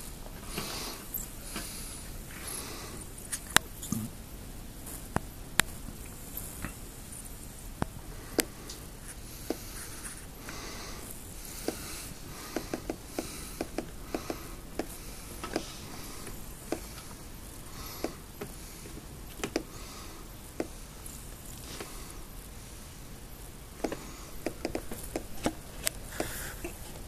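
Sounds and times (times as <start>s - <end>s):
scratchy rubbing: 9.0s - 10.4s.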